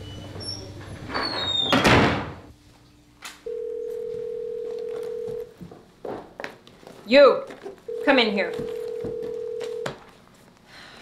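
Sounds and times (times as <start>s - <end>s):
telephone dial tone: 3.5s - 5.5s, 7.9s - 10.0s.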